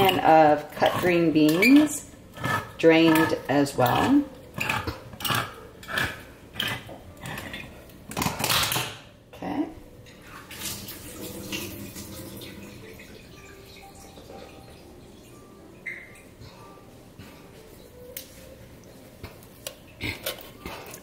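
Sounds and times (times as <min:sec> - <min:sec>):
metal kitchenware clinking: 0:00.0 - 0:09.1.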